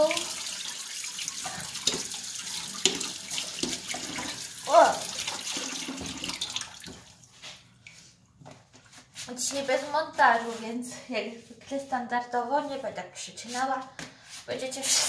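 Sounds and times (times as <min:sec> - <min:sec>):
tap running into a sink: 0:01.8 - 0:04.4, 0:05.8 - 0:07.1.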